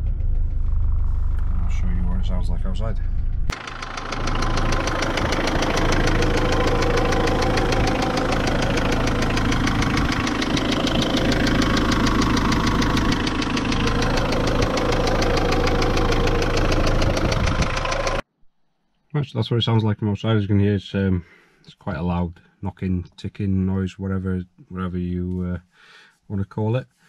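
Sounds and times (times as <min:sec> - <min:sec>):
diesel engine running: 0:00.0 - 0:18.2
rapid engine knocking: 0:00.4 - 0:18.2.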